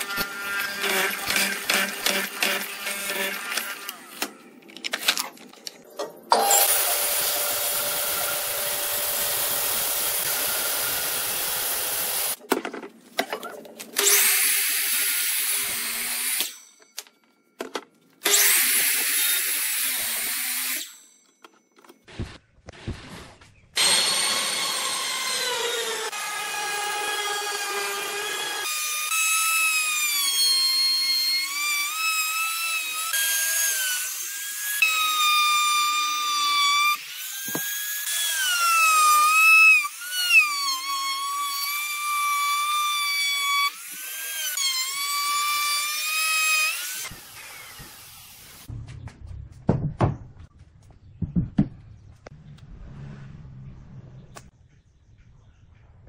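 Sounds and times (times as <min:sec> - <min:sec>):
power tool whining on wood: 0:00.0 - 0:04.1, 0:23.8 - 0:48.7.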